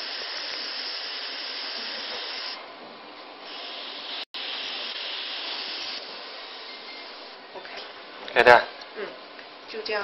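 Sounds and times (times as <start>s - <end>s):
spray gun hissing mist: 0.0s - 2.6s, 3.4s - 7.4s.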